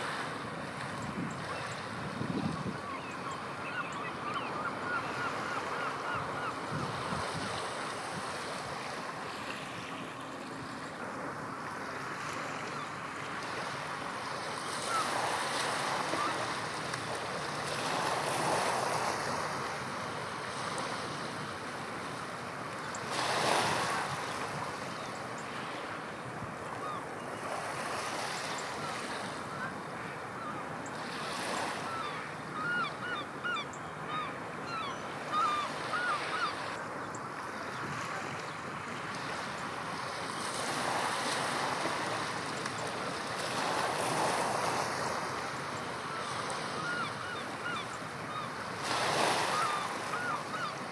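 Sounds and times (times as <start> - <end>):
wind buffeting microphone: 1.0 - 2.8.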